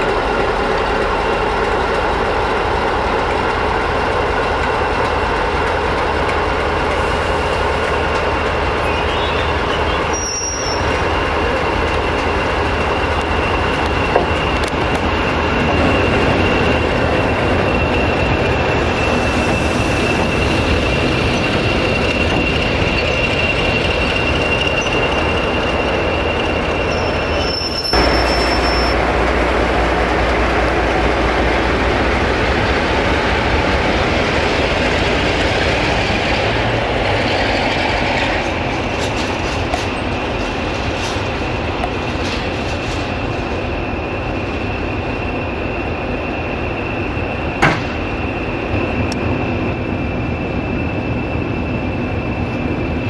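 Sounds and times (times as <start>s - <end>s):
diesel locomotive engine rumble: 0.0s - 53.0s
high wheel squeal: 6.9s - 29.0s.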